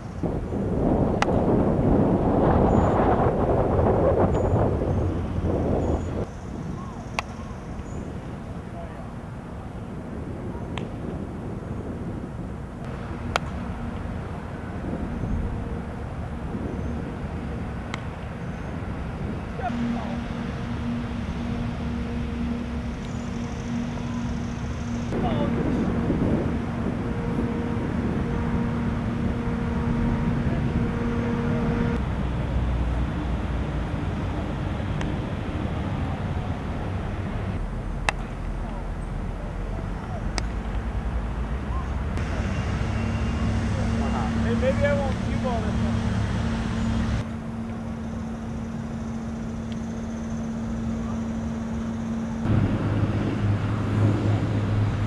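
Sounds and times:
low steady hum: 0:00.0 - 0:55.0
deep low rumble: 0:18.8 - 0:47.2, 0:52.0 - 0:55.0.

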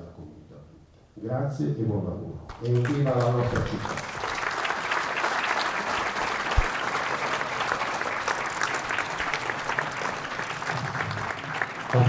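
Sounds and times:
audience applauding: 0:02.5 - 0:12.0.

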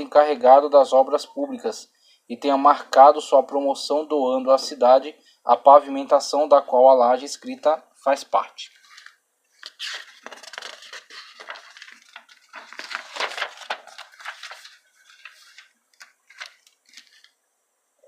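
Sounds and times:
rustling and crackling: 0:08.8 - 0:17.4.

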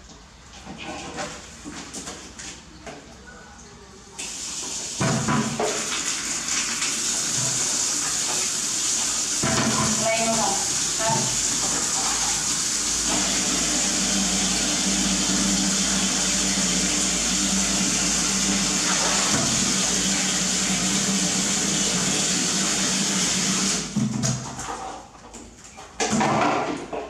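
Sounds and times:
tap water pouring into metal basin: 0:04.2 - 0:23.9.

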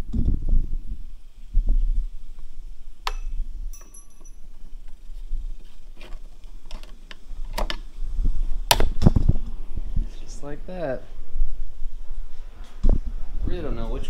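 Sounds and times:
short metallic ring: 0:03.1 - 0:04.5.

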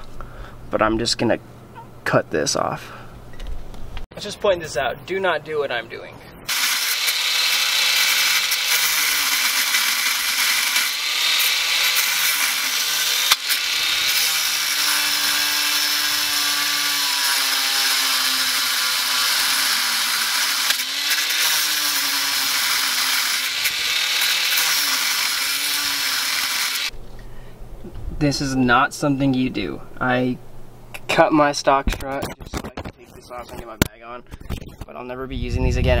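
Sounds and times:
power tool cutting metal: 0:06.5 - 0:26.9.

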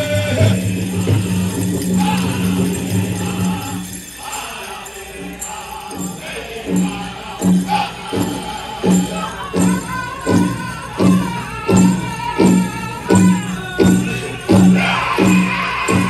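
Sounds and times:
big drum steady beat: 0:00.0 - 0:04.6, 0:05.2 - 0:16.0
group singing: 0:00.0 - 0:16.0
jingling bells: 0:00.0 - 0:16.0.

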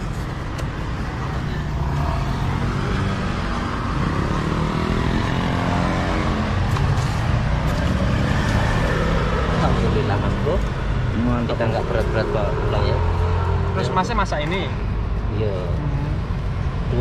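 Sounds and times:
motor scooters passing: 0:01.0 - 0:14.2.

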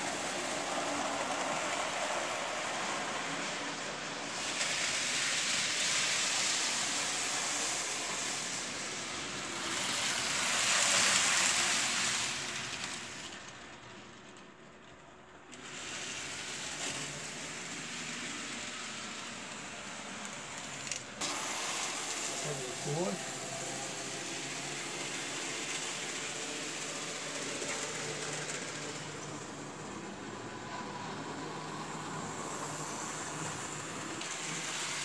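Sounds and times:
model trains whirring on track: 0:00.0 - 0:35.0.

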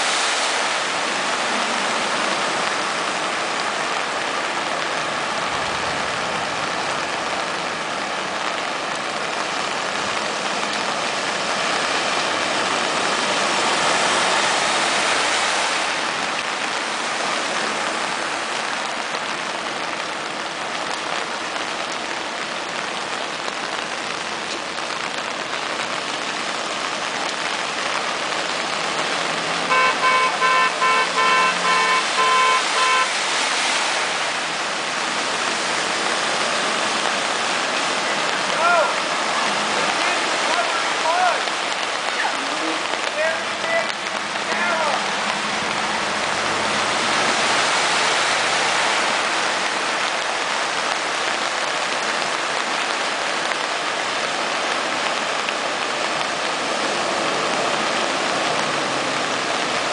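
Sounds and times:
vehicles driving through water: 0:00.0 - 0:59.9
car horn short beeps: 0:29.7 - 0:33.2.

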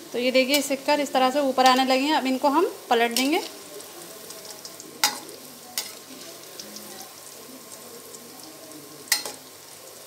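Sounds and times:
oil sizzling: 0:00.0 - 0:10.0
metal spoon clinking on pan: 0:04.5 - 0:06.1, 0:09.1 - 0:09.5.

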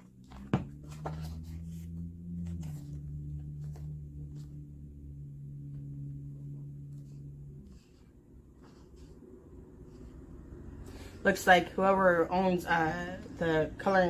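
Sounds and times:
book pages turning: 0:00.0 - 0:05.0, 0:06.8 - 0:10.3
low steady hum: 0:00.0 - 0:14.0.

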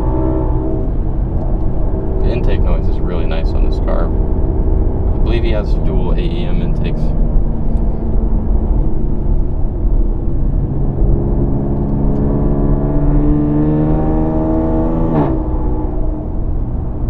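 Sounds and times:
car engine accelerating: 0:00.0 - 0:17.0.

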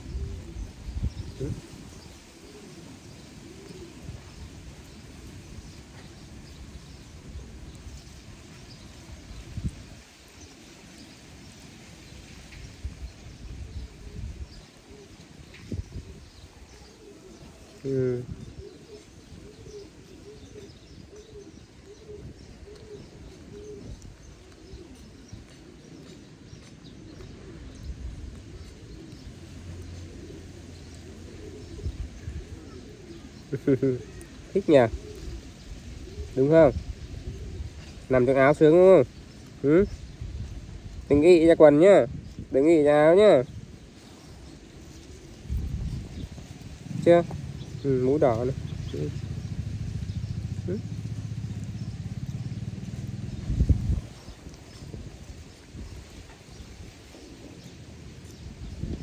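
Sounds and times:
dove cooing: 0:00.0 - 0:59.0
small birds chirping: 0:00.0 - 0:59.0
low steady rumble: 0:45.4 - 0:54.6.

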